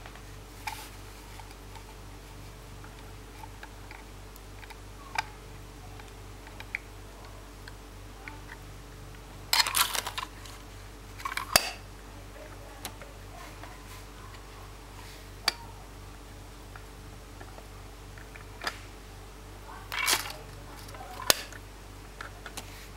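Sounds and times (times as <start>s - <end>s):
low steady hum: 0.0s - 22.9s
plastic parts clicking and rattling: 9.5s - 11.8s, 19.8s - 21.6s.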